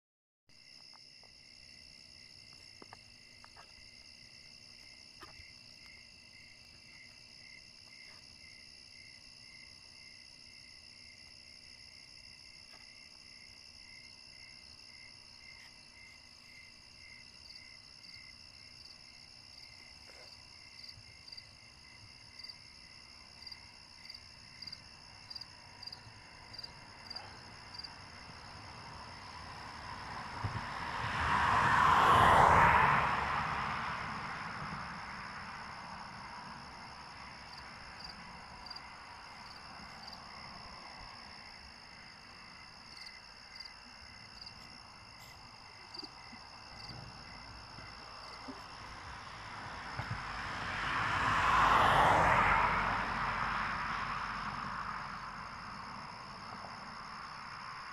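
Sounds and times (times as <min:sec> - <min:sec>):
higher insect chirp: 0:00.6 - 0:30.1, 0:35.0 - 0:50.1
crickets trilling: 0:00.6 - 0:57.9.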